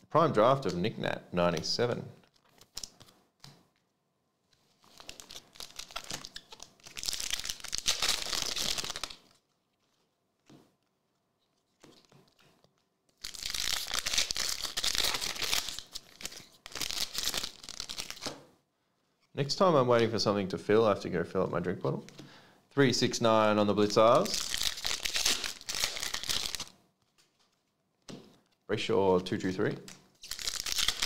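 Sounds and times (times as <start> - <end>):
wrappers crinkling: 4.6 - 10.2, 10.8 - 18.3, 23.8 - 27.7, 29.9 - 31.0
foil packs being torn open: 4.9 - 9.2, 13.2 - 18.3, 24.2 - 26.7, 30.2 - 31.0.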